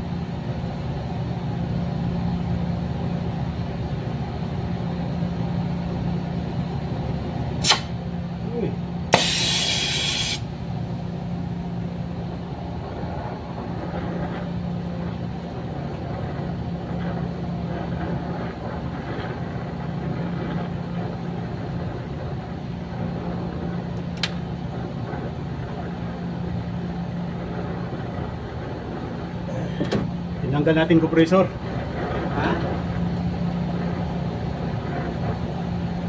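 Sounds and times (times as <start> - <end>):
brazing torch roaring: 0.0 - 36.0
constant low hum: 0.0 - 36.0
sharp click: 7.6 - 8.0.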